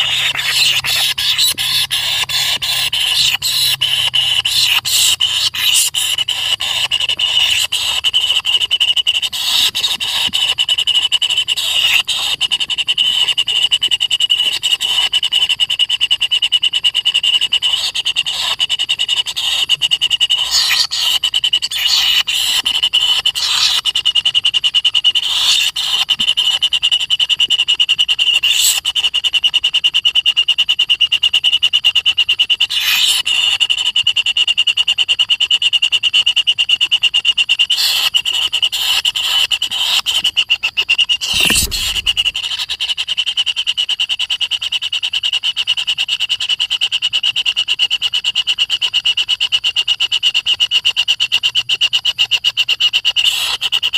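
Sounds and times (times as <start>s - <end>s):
nestlings squealing: 0.0s - 8.4s, 9.2s - 10.2s, 20.4s - 23.8s, 25.2s - 26.0s, 28.4s - 28.8s, 32.7s - 33.3s, 37.8s - 40.3s, 41.1s - 42.9s
nestlings high pulsed buzz: 41.2s - 42.6s.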